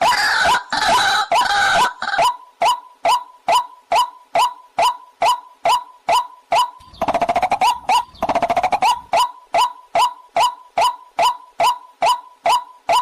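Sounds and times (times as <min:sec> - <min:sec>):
bird calling sharp notes: 0:00.0 - 0:13.0
bird rattling trills: 0:06.6 - 0:10.1.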